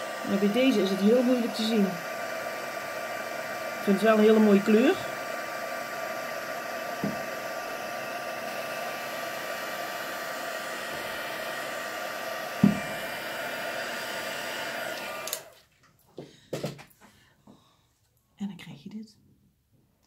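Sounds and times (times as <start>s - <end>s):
heat gun whirring hum: 0.0s - 15.6s.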